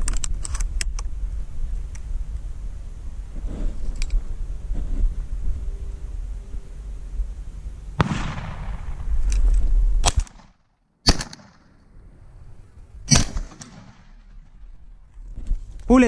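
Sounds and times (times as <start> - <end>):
shotgun shots: 8.0 - 9.3, 10.0 - 11.8, 13.1 - 14.3.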